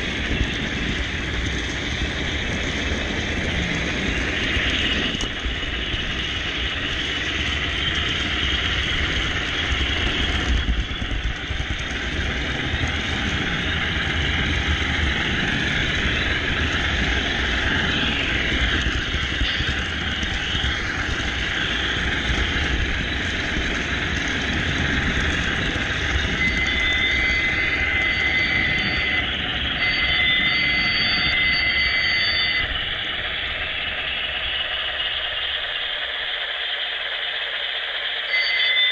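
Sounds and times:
locomotive onboard sound: 0:00.0 - 0:38.9
long high tones: 0:13.6 - 0:22.3, 0:25.3 - 0:38.9.

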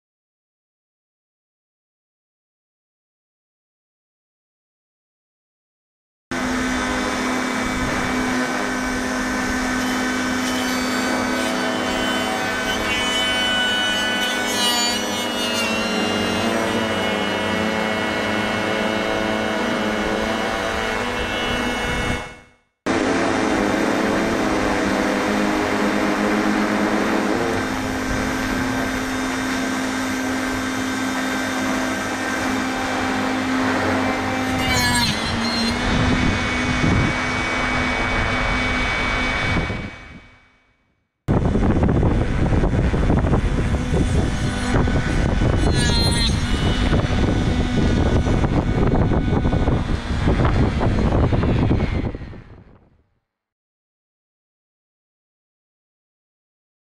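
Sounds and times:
drone propellers hovering: 0:06.3 - 0:12.9, 0:16.0 - 0:40.4, 0:41.3 - 0:52.6
saw cutting branch: 0:06.4 - 0:40.0, 0:43.0 - 0:52.3.

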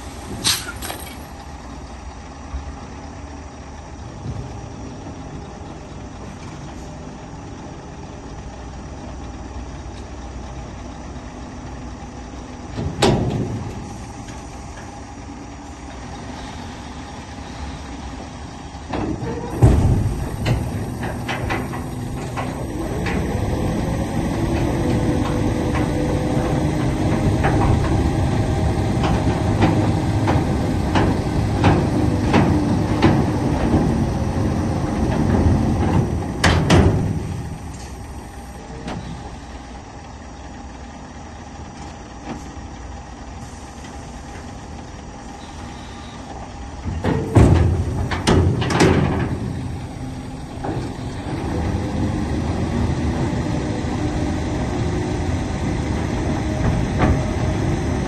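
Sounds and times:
diesel engine idling: 0:00.0 - 0:58.0
loud thumps: 0:19.5 - 0:22.4.

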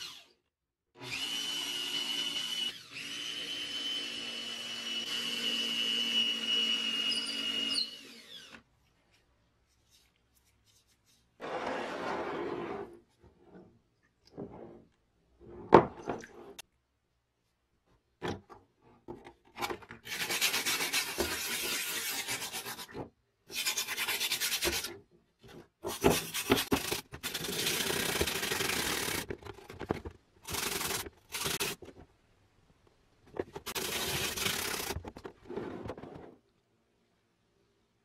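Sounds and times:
hand sanding strokes: 0:23.5 - 0:24.9.

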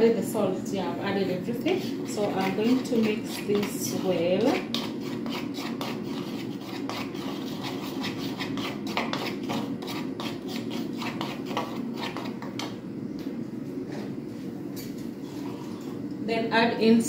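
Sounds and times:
metal spoon scraping a bowl: 0:01.7 - 0:12.7.

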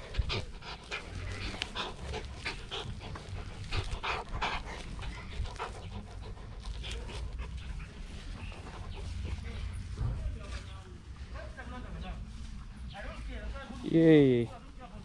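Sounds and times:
puppy panting: 0:00.0 - 0:11.8.

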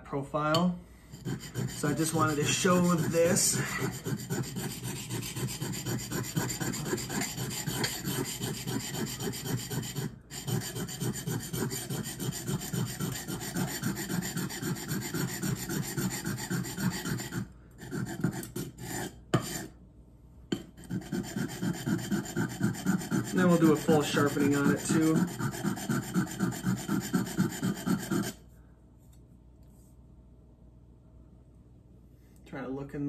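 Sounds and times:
knife rasping on whetstone: 0:01.1 - 0:19.7, 0:20.8 - 0:28.4.

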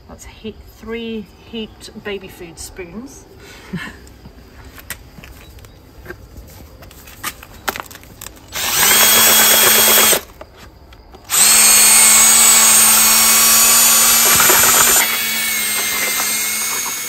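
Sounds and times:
cordless drill mixing plaster: 0:08.5 - 0:10.3, 0:11.3 - 0:17.0.

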